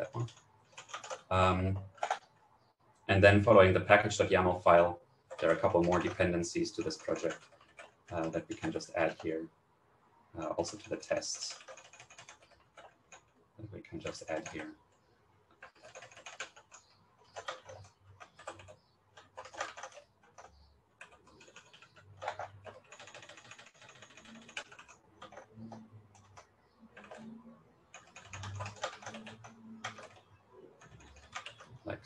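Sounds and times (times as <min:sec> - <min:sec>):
typing on computer keyboard: 0:00.1 - 0:02.4, 0:05.3 - 0:09.3, 0:10.6 - 0:13.4, 0:14.0 - 0:14.7, 0:15.5 - 0:31.7.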